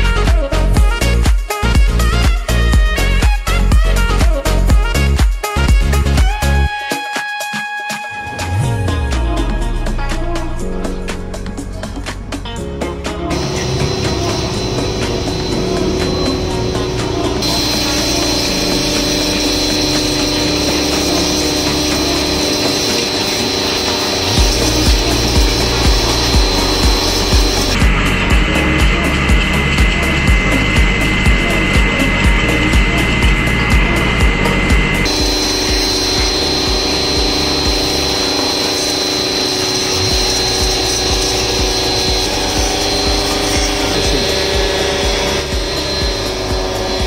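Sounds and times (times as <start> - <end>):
pressure washer motor hum: 11.0 - 47.0
high-pressure water jet hissing: 13.3 - 47.0.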